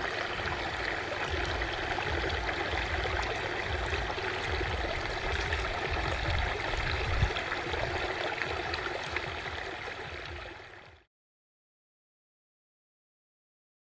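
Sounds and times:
stream flowing: 0:00.0 - 0:11.1.

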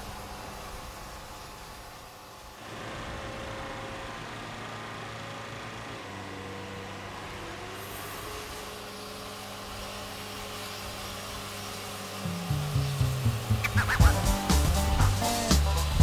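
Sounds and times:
sawmill engine hum: 0:00.0 - 0:16.0
band blade cutting log: 0:11.5 - 0:15.6.

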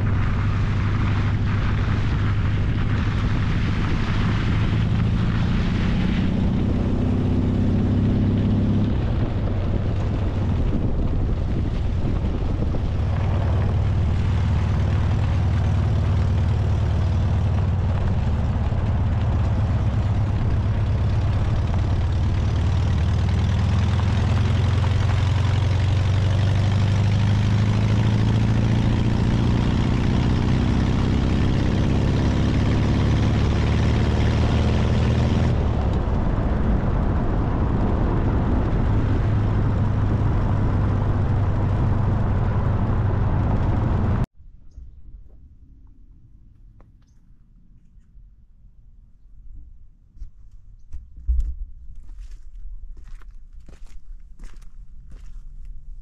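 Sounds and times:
car engine revving while driving: 0:00.0 - 0:44.3.

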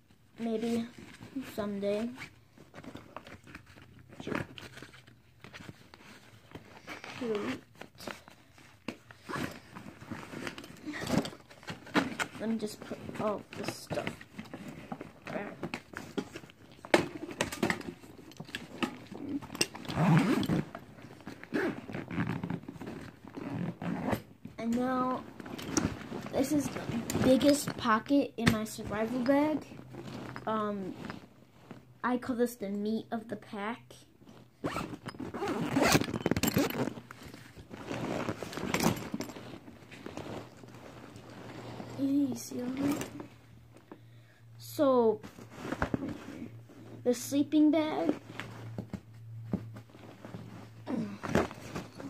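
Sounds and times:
fabric backpack rustling: 0:00.4 - 0:27.8, 0:28.9 - 0:32.0, 0:34.2 - 0:44.0, 0:45.1 - 0:47.0, 0:48.0 - 0:52.0
backpack zipper pulled open: 0:06.8 - 0:08.2, 0:09.2 - 0:12.3, 0:18.6 - 0:24.3, 0:34.6 - 0:42.0
items clicking and knocking: 0:07.7 - 0:23.4, 0:24.2 - 0:29.2, 0:34.9 - 0:41.9
fabric rustling: 0:29.0 - 0:32.0, 0:34.2 - 0:43.9, 0:45.1 - 0:47.1, 0:47.8 - 0:52.0.

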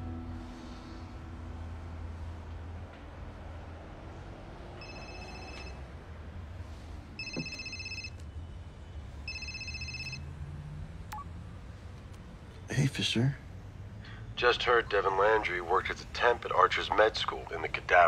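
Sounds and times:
smartphone ringtone ringing: 0:04.8 - 0:05.8, 0:07.2 - 0:08.2, 0:09.3 - 0:10.3.

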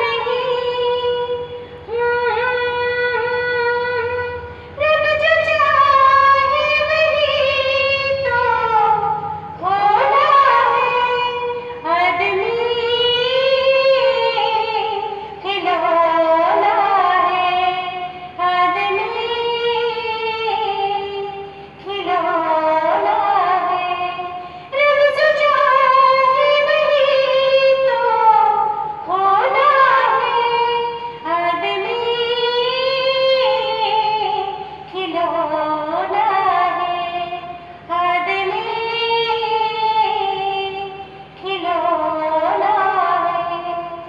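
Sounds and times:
woman singing into microphone: 0:00.0 - 0:44.0.

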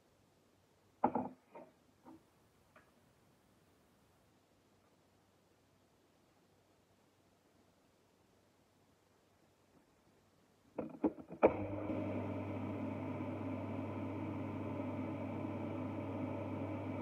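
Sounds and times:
blender motor running: 0:11.5 - 0:17.0.

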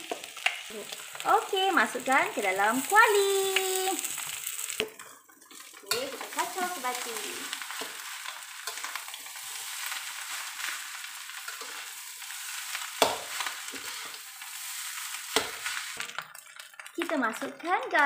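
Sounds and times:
rice sizzling in a wok: 0:00.0 - 0:18.0
metal spatula scraping wok: 0:04.1 - 0:16.2.

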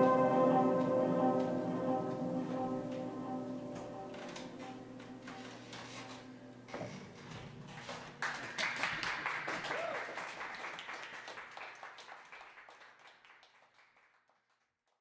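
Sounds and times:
upright piano notes ringing: 0:00.0 - 0:06.7
audience applauding: 0:08.0 - 0:14.6.

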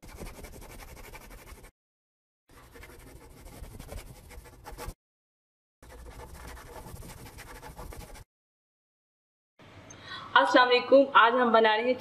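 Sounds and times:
marker scratching on whiteboard: 0:00.0 - 0:01.7, 0:02.5 - 0:05.0, 0:05.8 - 0:08.3.

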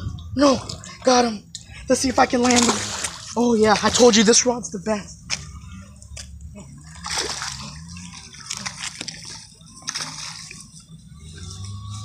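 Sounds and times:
fish splashing in shallow water: 0:02.1 - 0:04.3, 0:06.8 - 0:12.0.

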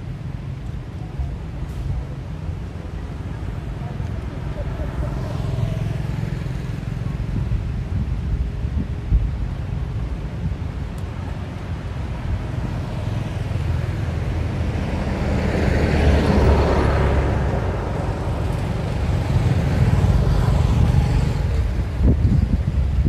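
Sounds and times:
motorbike passing: 0:01.2 - 0:08.0, 0:11.9 - 0:23.0
wind on microphone: 0:06.6 - 0:23.0
bus driving past: 0:11.9 - 0:23.0.

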